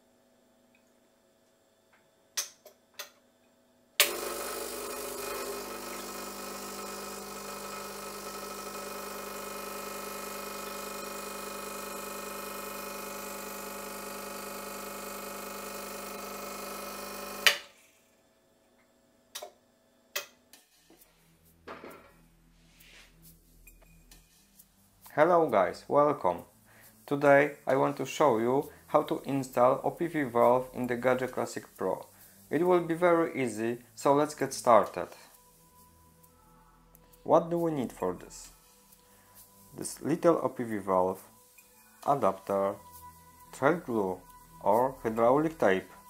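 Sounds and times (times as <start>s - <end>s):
espresso machine pump running: 4.0s - 17.6s.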